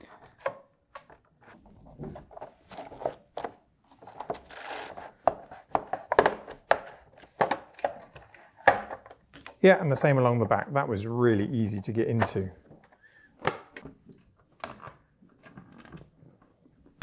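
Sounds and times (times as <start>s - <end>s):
plastic card scraping: 3.9s - 5.4s.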